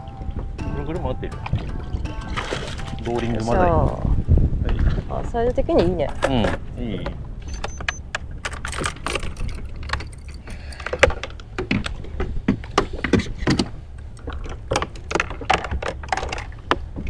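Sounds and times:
low rumble of wind and water: 0.0s - 17.0s
fishing gear clinking and knocking: 7.5s - 17.0s.

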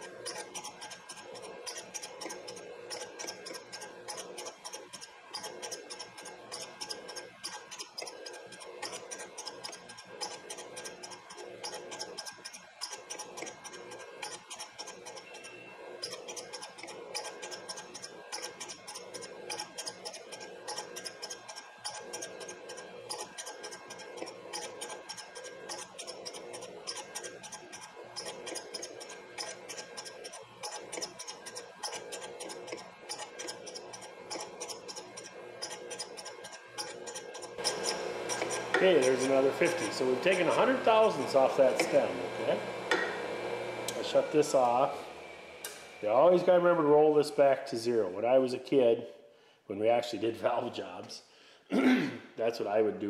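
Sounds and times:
fast fine ticking of grinding stone: 0.0s - 42.2s
grinding machine humming: 0.0s - 47.2s.

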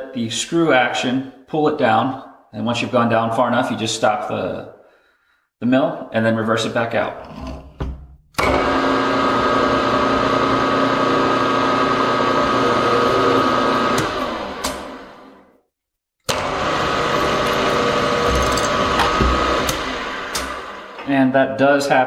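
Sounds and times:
mill spindle motor running: 8.4s - 15.4s, 16.3s - 21.0s.

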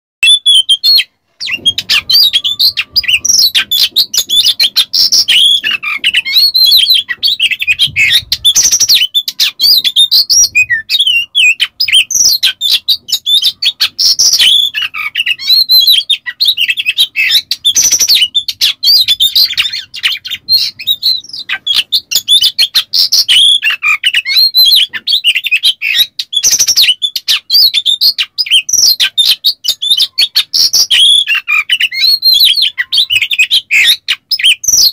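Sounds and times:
bird singing whistled phrases: 0.2s - 34.9s.

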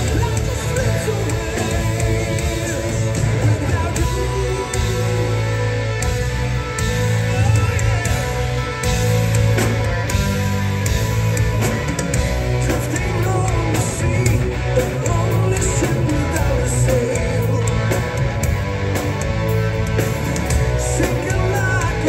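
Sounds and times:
man singing: 0.0s - 5.8s, 12.5s - 18.3s, 20.5s - 22.0s
drums: 0.0s - 22.0s
electric guitar: 0.0s - 22.0s.

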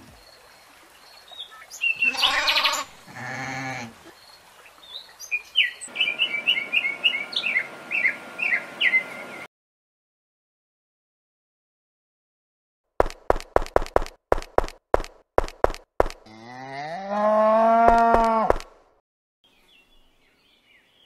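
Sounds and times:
sheep or goat bleating: 2.0s - 4.0s.

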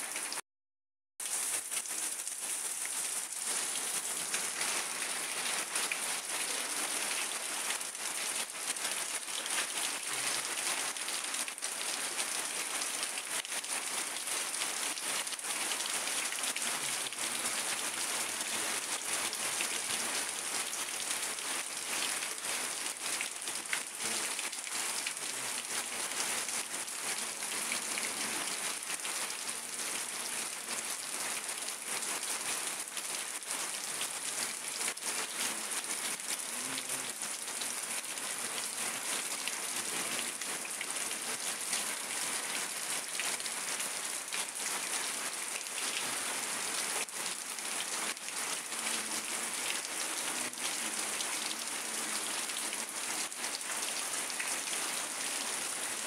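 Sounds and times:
steady rain falling: 0.0s - 0.4s, 1.2s - 56.0s.

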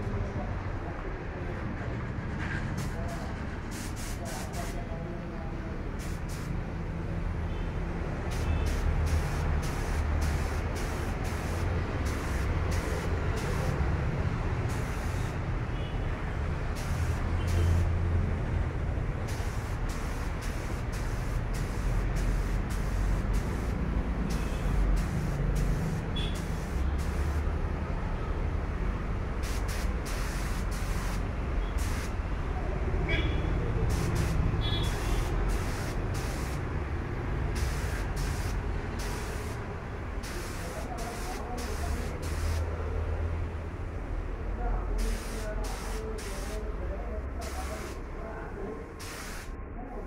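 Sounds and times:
spray gun hissing bursts: 3.7s - 4.9s, 5.9s - 6.7s, 8.2s - 15.5s, 16.7s - 18.0s, 19.2s - 27.6s, 29.3s - 32.2s, 33.8s - 42.7s, 45.0s - 46.6s, 47.4s - 48.1s, 48.9s - 49.5s.

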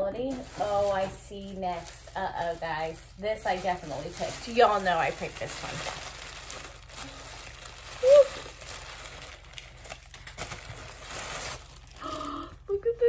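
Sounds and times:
packaging rustling and crinkling: 0.0s - 12.6s
woman humming: 12.0s - 13.0s.

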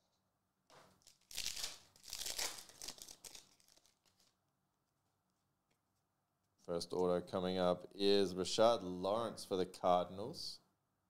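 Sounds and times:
foil wrapper crinkling and tearing: 0.9s - 4.4s.

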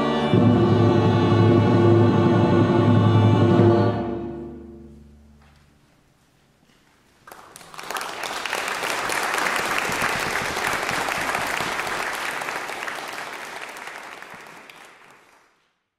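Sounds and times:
audience applauding: 7.2s - 15.6s.

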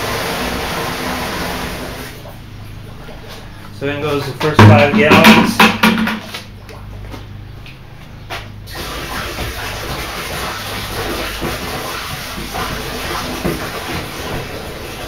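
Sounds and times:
water pouring into a plastic barrel: 8.7s - 15.0s.

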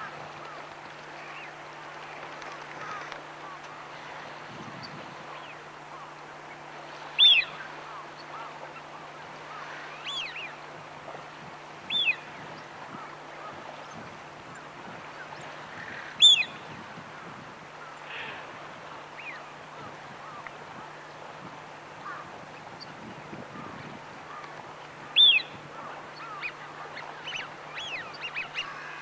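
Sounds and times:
ducks whistling: 7.2s - 8.9s, 16.2s - 16.6s, 25.2s - 25.6s, 26.2s - 29.0s.

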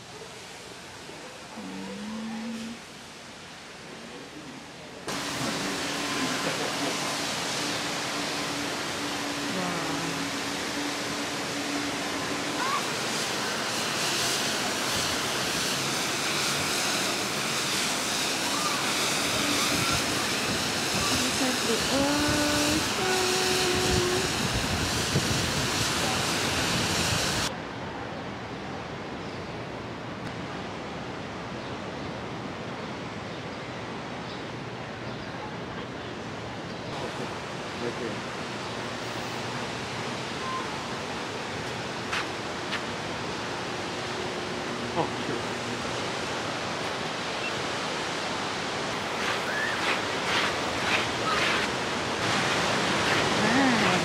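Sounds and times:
ocean surf rushing: 0.0s - 27.6s, 36.2s - 54.0s
wind: 0.0s - 54.0s
ocean surf breaking: 37.0s - 54.0s.

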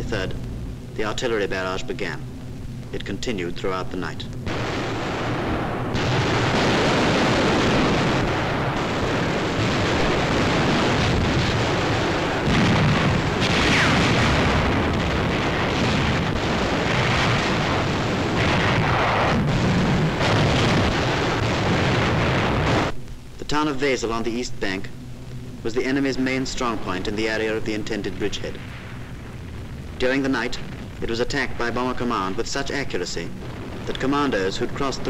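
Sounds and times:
artillery barrage: 4.4s - 24.8s, 25.6s - 35.0s.

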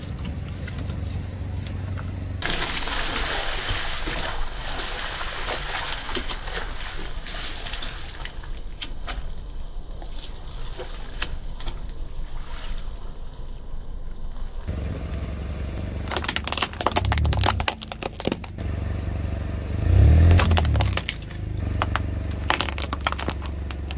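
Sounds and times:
car engine humming: 0.0s - 2.4s, 14.7s - 23.9s
drink carton crinkling: 16.0s - 18.6s, 20.4s - 23.9s
plastic cracking and crunching: 16.0s - 18.6s, 20.3s - 23.9s.

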